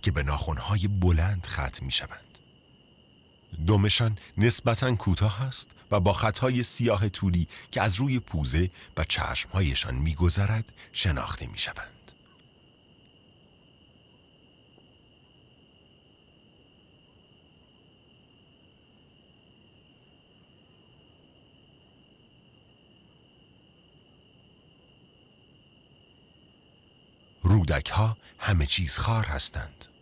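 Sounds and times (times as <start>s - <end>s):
cricket trilling: 0.0s - 30.0s
faint cricket chirps: 0.0s - 30.0s.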